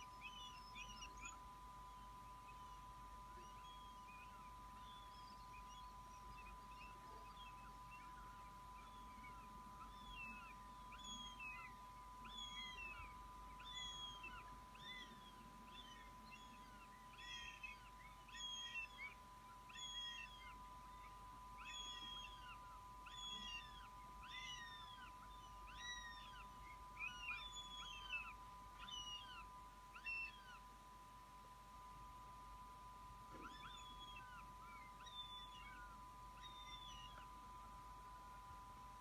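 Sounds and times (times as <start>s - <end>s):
young hawks whining calls: 0.0s - 30.8s, 33.2s - 38.4s.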